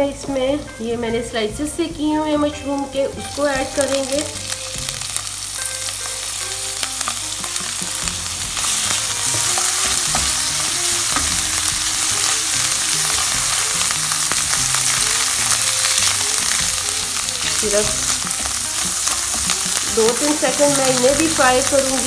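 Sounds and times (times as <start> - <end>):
food sizzling in hot oil: 2.8 - 22.0
spatula stirring in frying pan: 4.8 - 22.0.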